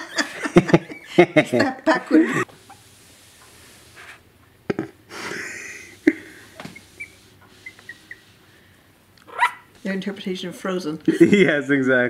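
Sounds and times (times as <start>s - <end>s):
puppy squeaks: 6.7s - 8.3s, 9.3s - 9.7s.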